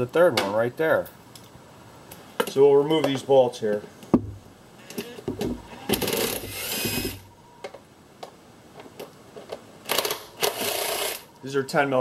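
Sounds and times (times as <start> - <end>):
cordless power tool running: 6.0 - 7.2.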